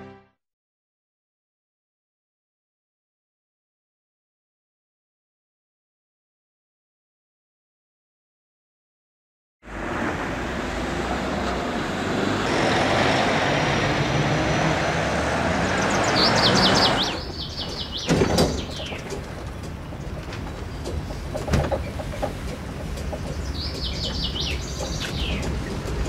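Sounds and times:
road traffic: 9.6 - 26.0
bird chirping: 15.6 - 22.0, 23.0 - 25.9
loud knocks: 17.5 - 26.0.

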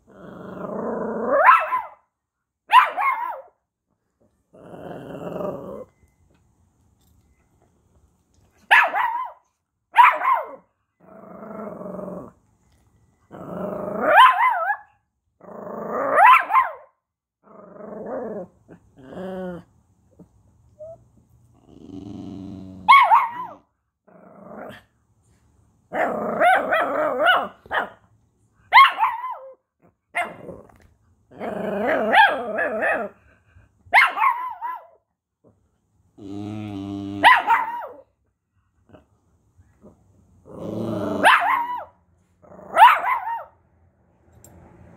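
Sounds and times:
small dogs growling: 0.0 - 1.5, 4.3 - 6.0, 11.0 - 12.5, 13.3 - 14.2, 15.4 - 16.3, 17.4 - 24.9, 25.9 - 27.8, 29.1 - 33.4, 36.2 - 38.0, 38.8 - 41.8, 42.4 - 42.9
small dogs barking: 1.3 - 2.1, 2.7 - 3.6, 8.6 - 10.7, 14.0 - 14.9, 16.1 - 17.0, 22.8 - 23.7, 25.9 - 28.0, 28.7 - 30.5, 31.8 - 33.2, 33.9 - 35.0, 37.2 - 38.1, 41.1 - 42.0, 42.6 - 43.6.

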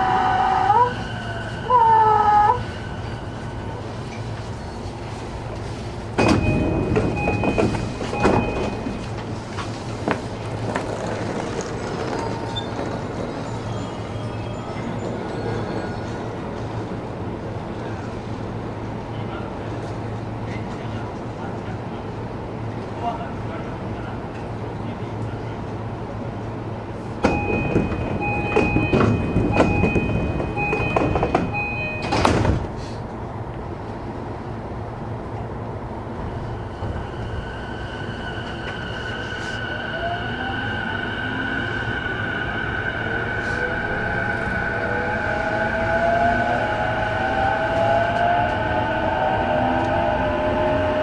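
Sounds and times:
train low hum: 0.0 - 51.0
train doors opening clunk: 5.5 - 13.7, 27.2 - 33.2.

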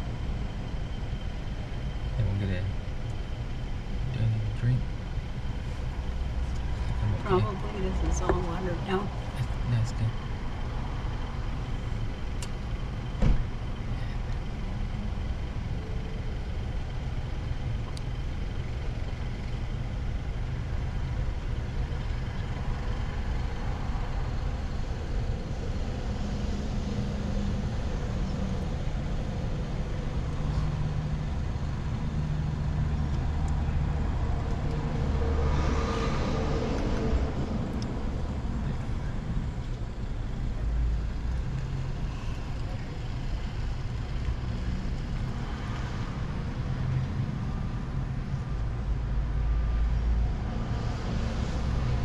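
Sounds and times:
car engine idling: 0.0 - 50.0.

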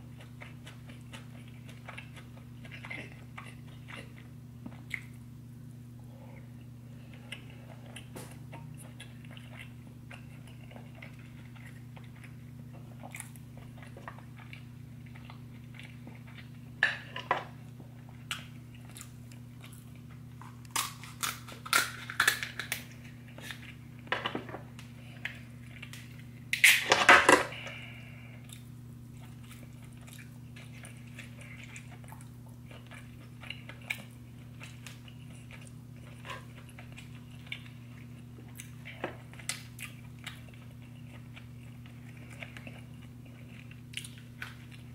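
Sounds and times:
close chewing and biting: 7.0 - 16.6, 28.4 - 44.9.

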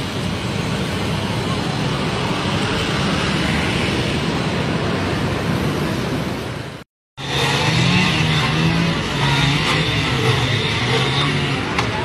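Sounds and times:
city road traffic: 0.0 - 12.0.

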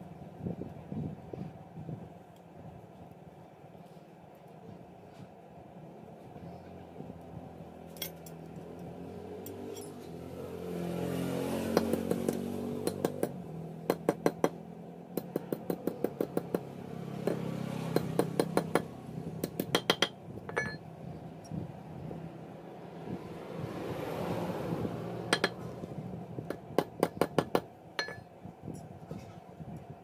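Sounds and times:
hammer tapping metal on anvil: 15.2 - 20.8, 25.3 - 25.7, 26.4 - 28.3.

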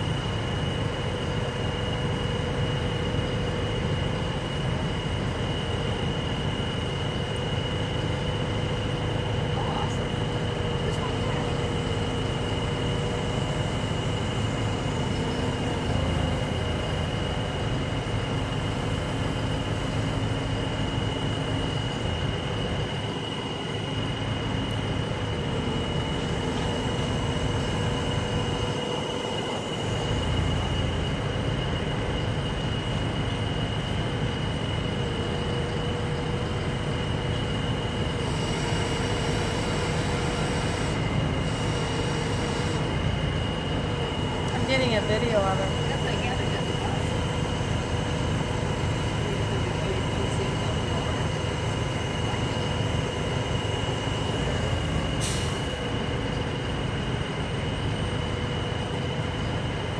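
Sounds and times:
crane engine rumble: 0.0 - 59.9
crane hydraulics high whine: 0.0 - 59.9.

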